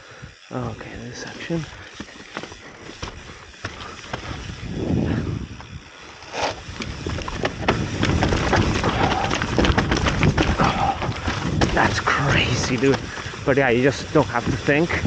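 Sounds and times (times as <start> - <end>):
bike tyres rolling over stones: 0.0 - 15.0
bike knocking and rattling: 0.1 - 15.0
wind rushing over microphone: 4.2 - 5.9, 6.5 - 15.0.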